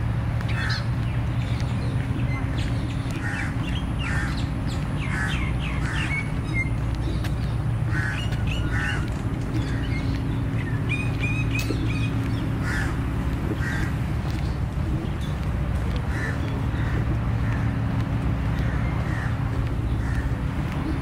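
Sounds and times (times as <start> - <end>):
low outdoor rumble: 0.0 - 21.0
bird harsh calls: 0.5 - 15.4, 16.1 - 17.8, 18.6 - 21.0.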